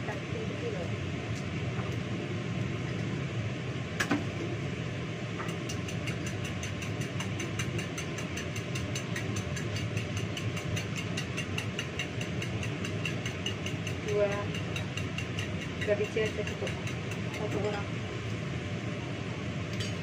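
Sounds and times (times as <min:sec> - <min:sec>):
low mechanical hum: 0:00.0 - 0:20.0
spoon beating eggs in bowl: 0:05.5 - 0:17.7.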